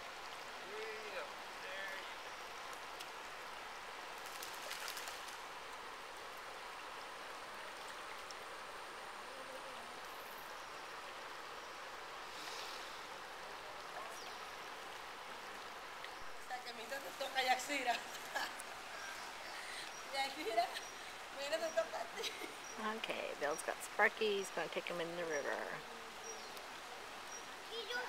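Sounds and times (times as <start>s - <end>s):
water splashing: 4.2s - 5.6s.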